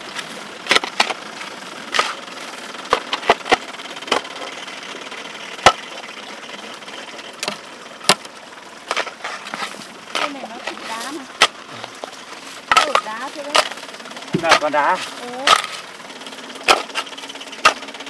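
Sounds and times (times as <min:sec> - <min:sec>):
steady engine hum: 0:00.0 - 0:18.0
digging tool striking soil: 0:00.1 - 0:01.2, 0:01.9 - 0:02.3, 0:07.4 - 0:15.9, 0:16.6 - 0:18.0.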